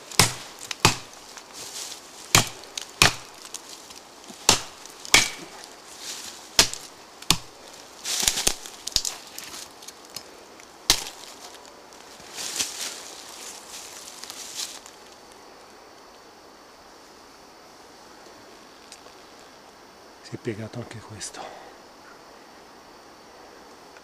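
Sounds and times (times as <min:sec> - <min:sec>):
wood splintering crack: 0:00.0 - 0:01.4, 0:02.3 - 0:05.7, 0:06.6 - 0:07.5, 0:08.2 - 0:10.3, 0:10.9 - 0:11.4
rustling: 0:00.0 - 0:15.4
machete chopping tree trunk: 0:00.1 - 0:01.2, 0:02.3 - 0:03.6, 0:04.4 - 0:05.7, 0:06.6 - 0:07.6, 0:10.9 - 0:11.3.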